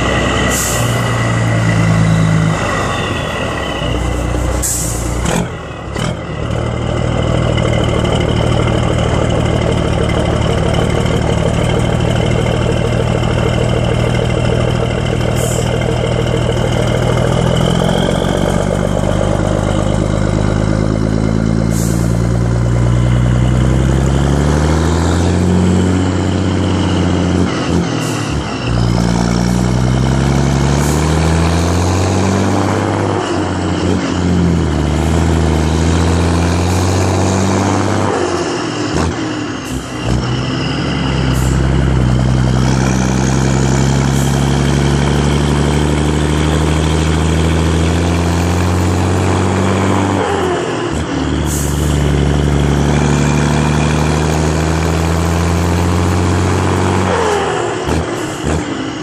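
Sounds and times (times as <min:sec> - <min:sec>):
diesel truck engine pulling: 0:00.0 - 0:59.0.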